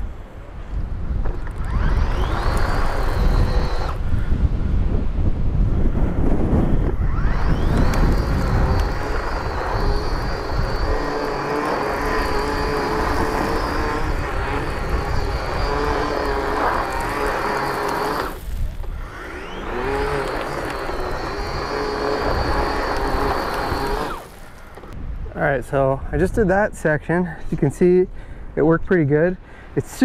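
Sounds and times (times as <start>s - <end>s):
power head motor whine: 1.1s - 4.3s, 6.0s - 25.0s
paddles sweeping wet grass and gravel: 14.2s - 24.9s.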